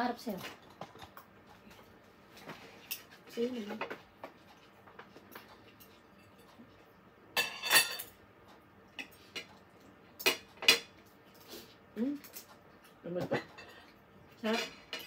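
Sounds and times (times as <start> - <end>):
cutlery clinking on a plate: 7.4 - 8.2, 10.2 - 11.0.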